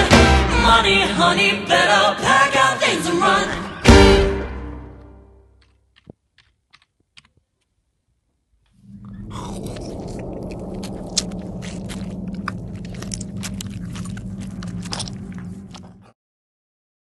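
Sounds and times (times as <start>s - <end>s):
steady low drone: 8.8s - 16.2s.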